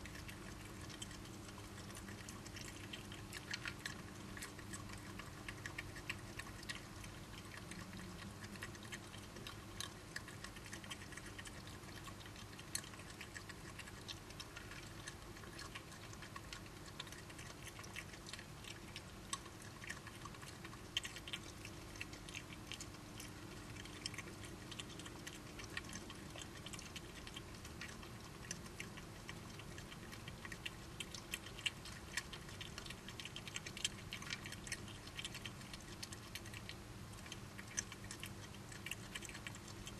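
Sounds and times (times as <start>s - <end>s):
badgers chewing and crunching: 0.0s - 39.9s
steady low hum: 0.0s - 39.9s.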